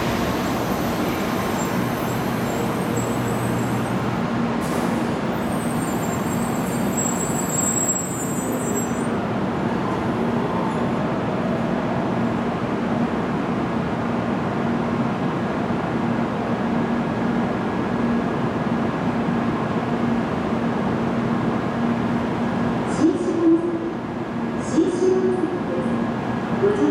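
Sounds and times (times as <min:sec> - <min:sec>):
train rolling to a stop: 0:00.0 - 0:11.1.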